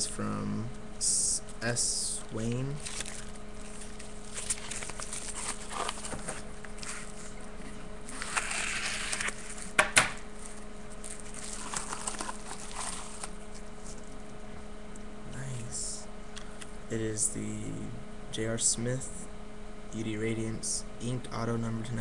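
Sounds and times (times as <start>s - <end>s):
steady low hum: 0.0s - 22.0s
paper and plastic rustling: 2.4s - 9.8s, 10.4s - 14.2s.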